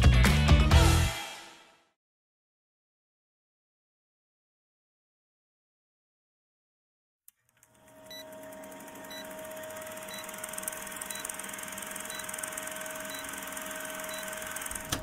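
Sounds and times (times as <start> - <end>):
film projector clatter: 7.5 - 15.0
projector stopping click: 7.6 - 15.0.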